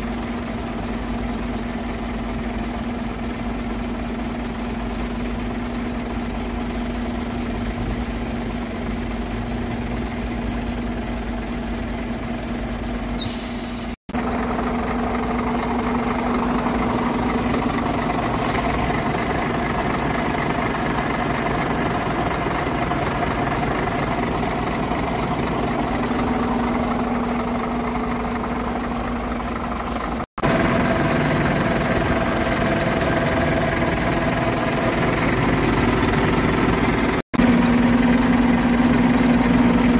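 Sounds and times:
diesel truck engine idling: 0.0s - 39.9s.

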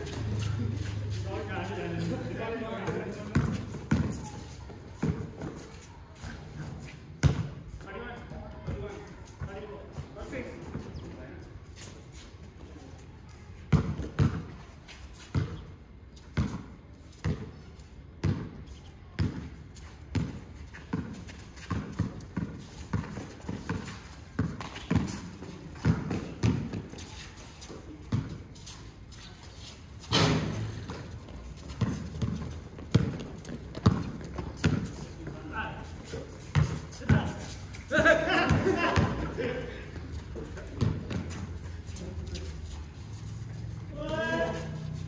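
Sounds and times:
basketball bouncing on concrete: 2.6s - 5.6s, 7.2s - 7.5s, 13.7s - 14.5s, 18.2s - 19.5s, 20.1s - 27.0s, 30.1s - 35.4s, 36.3s - 37.5s, 38.3s - 39.3s, 40.6s - 41.5s
basketball bouncing on hard court: 2.8s - 4.4s, 13.7s - 14.4s, 24.4s - 25.2s, 25.8s - 26.9s, 30.2s - 35.0s, 36.4s - 37.4s.

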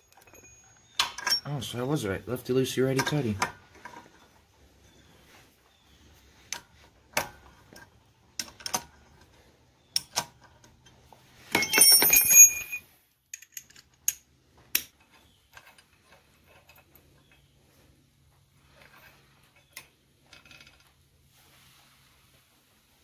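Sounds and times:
ringing metal clatter: 0.0s - 1.8s, 11.5s - 13.6s
hand tools clicking on metal: 0.1s - 1.5s.

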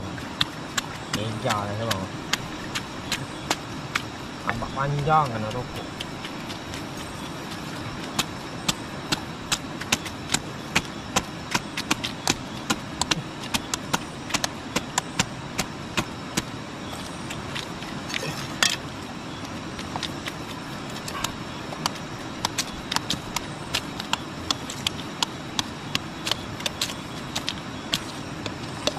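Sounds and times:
steady rushing noise: 0.0s - 28.9s.

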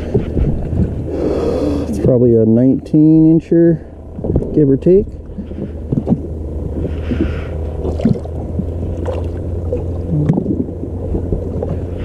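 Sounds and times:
wind on microphone: 0.0s - 2.2s, 4.0s - 12.0s
water splashing and gurgling: 4.1s - 12.0s.

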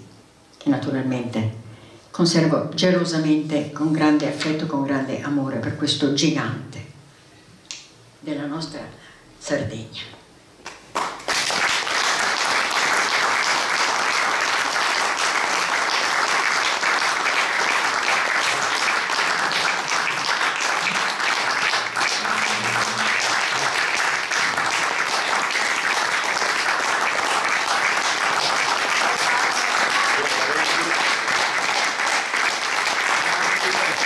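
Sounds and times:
audience applauding: 10.7s - 34.0s.

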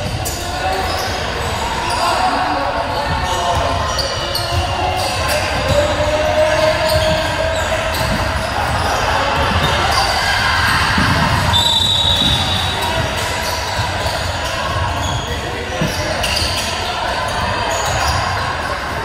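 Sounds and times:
din of voices in a hall: 0.0s - 19.0s
basketball bouncing on a court: 6.8s - 10.0s, 10.7s - 16.6s.

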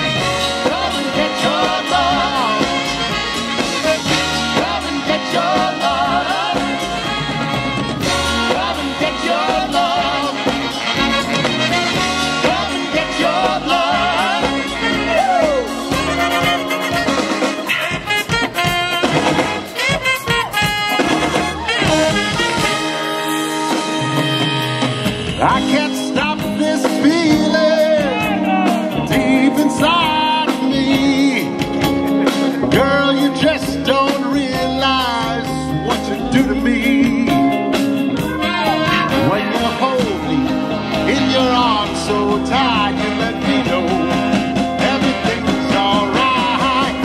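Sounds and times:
brass instruments: 0.0s - 47.0s
swing band playing: 0.0s - 47.0s
person singing: 23.9s - 47.0s.

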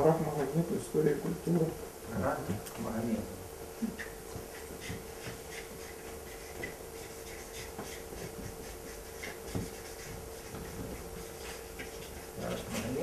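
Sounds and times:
electrical hum: 0.0s - 13.0s
marker writing on paper: 4.0s - 13.0s.

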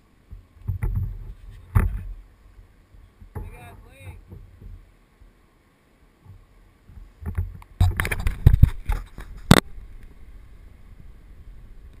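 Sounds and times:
faint steady hiss: 0.0s - 12.0s
handling knocks and rubbing on camera: 0.3s - 2.2s, 6.2s - 9.6s.

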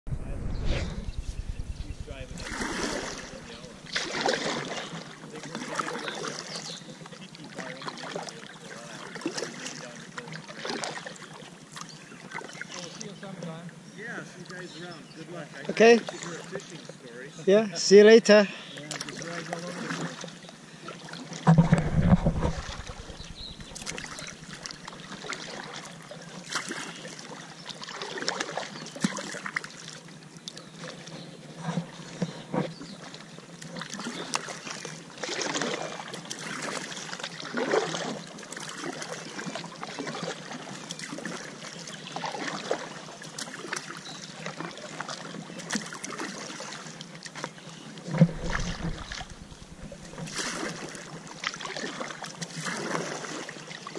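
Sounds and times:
low rumbling bumps: 0.0s - 4.0s, 21.5s - 24.6s, 48.2s - 50.2s
kayak paddle splashing: 1.0s - 13.4s, 18.7s - 53.9s.

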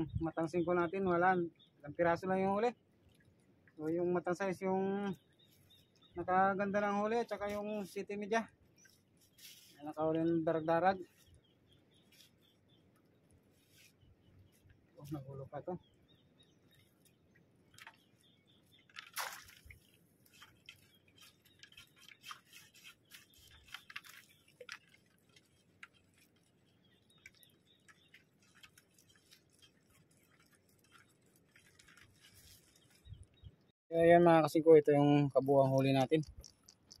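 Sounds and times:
fishing net rustling and scraping: 8.7s - 9.8s, 11.1s - 12.6s, 13.3s - 14.9s, 16.7s - 33.4s.

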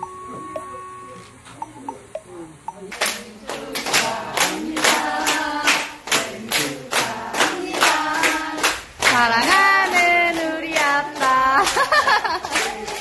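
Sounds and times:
group singing: 2.7s - 13.0s
people clapping in time: 2.7s - 13.0s.

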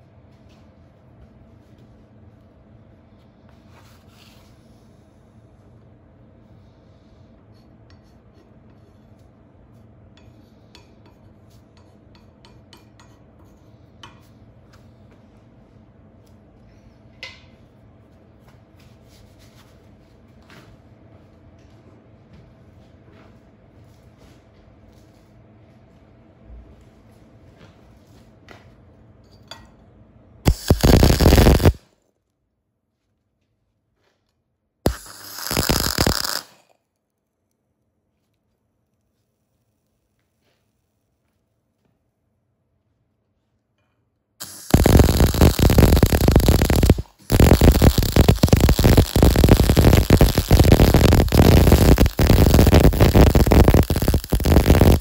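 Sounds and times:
welding arc crackling: 30.5s - 31.8s, 34.9s - 36.7s, 44.4s - 55.0s
steady low hum: 44.4s - 55.0s.

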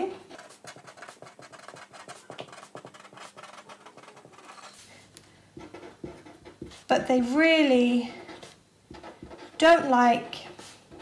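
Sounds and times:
marker writing on paper: 0.3s - 4.9s, 5.6s - 11.0s.

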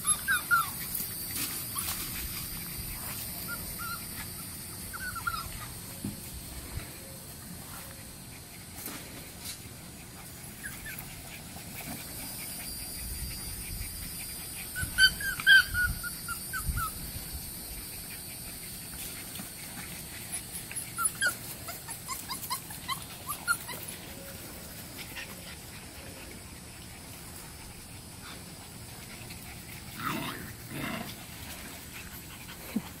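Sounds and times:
puppies yipping and whimpering: 0.0s - 8.8s, 9.6s - 33.0s.

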